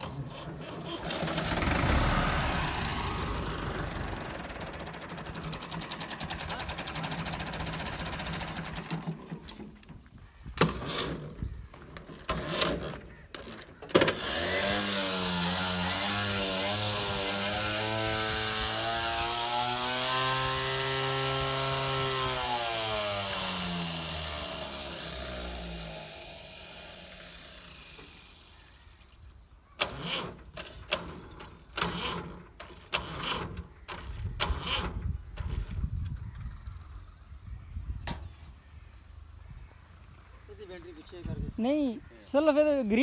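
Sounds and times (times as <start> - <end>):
tractor engine running: 0.0 - 9.8
hand tools clicking on engine: 29.8 - 35.8.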